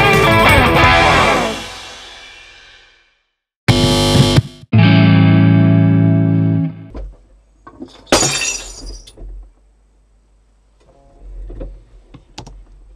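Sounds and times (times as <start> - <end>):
distorted electric guitar note: 0.0 - 2.4, 3.7 - 6.9
harsh noisy burst: 0.9 - 3.1.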